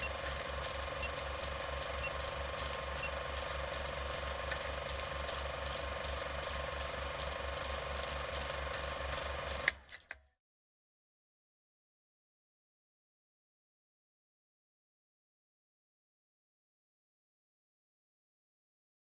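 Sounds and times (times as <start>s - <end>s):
film projector clicking: 0.0s - 10.2s
motor hum: 0.0s - 10.2s.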